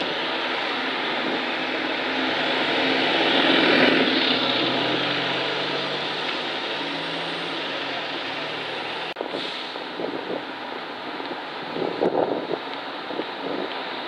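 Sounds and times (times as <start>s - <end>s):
vehicle approaching: 0.0s - 9.2s
bus driving past: 0.0s - 9.9s.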